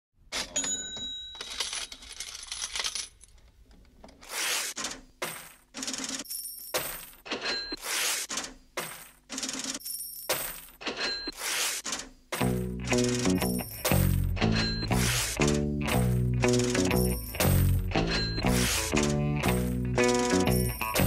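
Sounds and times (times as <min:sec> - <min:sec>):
metallic clinks and rattles: 0:00.5 - 0:03.4, 0:15.9 - 0:21.0.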